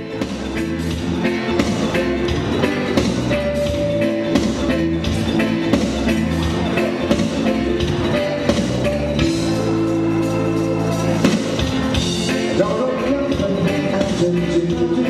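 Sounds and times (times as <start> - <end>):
dance band playing slow music: 0.0 - 15.0.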